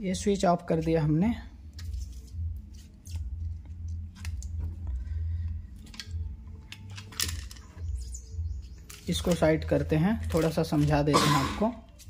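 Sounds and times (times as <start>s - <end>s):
plastic wire connectors clicking: 3.7s - 8.0s.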